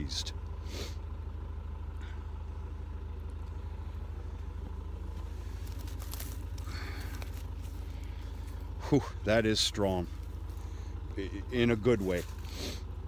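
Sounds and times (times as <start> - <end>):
engine idling: 0.0 - 13.0
hay rustling: 5.1 - 8.7, 11.8 - 12.7.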